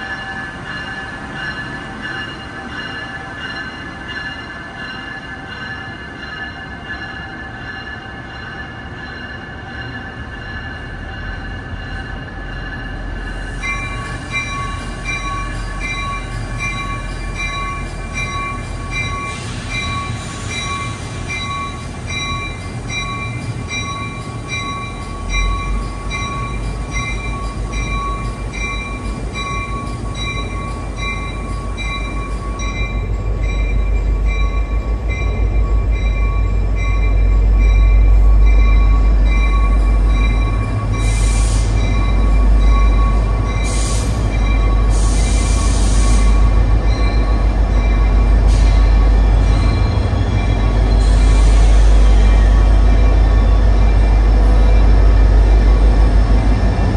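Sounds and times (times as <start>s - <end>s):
train wheels rumbling: 0.0s - 56.9s.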